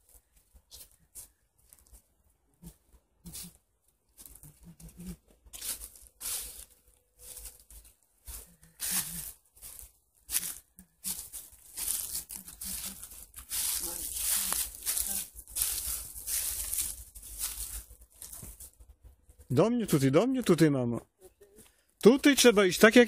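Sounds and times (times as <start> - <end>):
footsteps crunching through dry leaves: 3.3 - 18.9.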